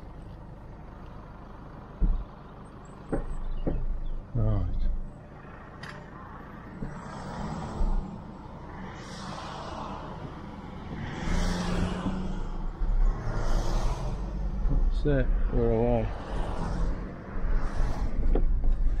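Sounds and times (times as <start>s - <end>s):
traffic swishing past: 5.4s - 19.0s.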